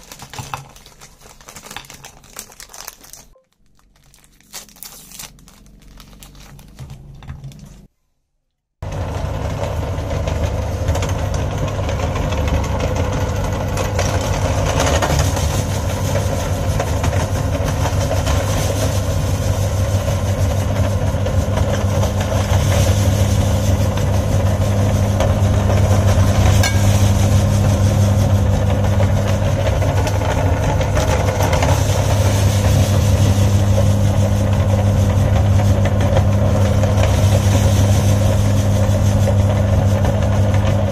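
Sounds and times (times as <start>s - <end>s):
foil wrapper crinkling: 0.0s - 7.9s
electric meat grinder humming: 8.8s - 40.9s.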